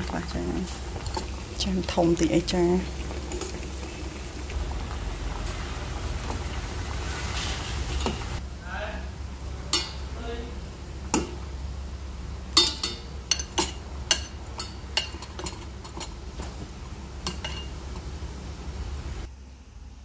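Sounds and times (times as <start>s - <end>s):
low steady hum: 0.0s - 20.0s
metal tongs clinking on metal: 9.7s - 10.0s, 12.6s - 16.2s, 17.2s - 17.7s.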